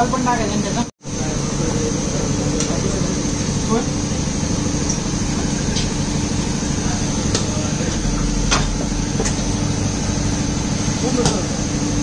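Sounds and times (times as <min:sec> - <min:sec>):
workshop machinery hum: 0:00.0 - 0:12.0.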